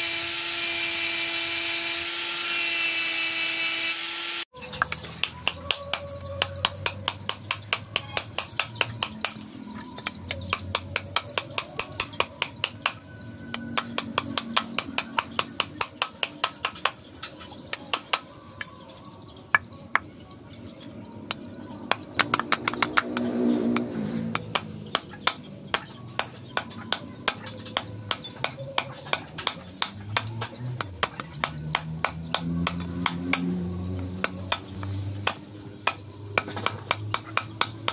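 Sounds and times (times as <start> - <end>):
cleaver chopping wood: 10.1 - 17.0, 21.9 - 37.9.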